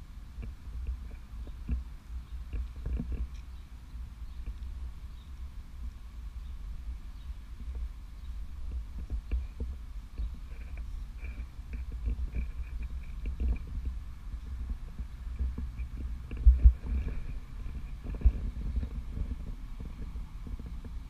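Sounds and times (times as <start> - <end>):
low rumbling wind: 0.0 - 21.0
microphone handling noise: 0.4 - 3.4, 7.6 - 21.0
thumps on microphone: 14.6 - 21.0.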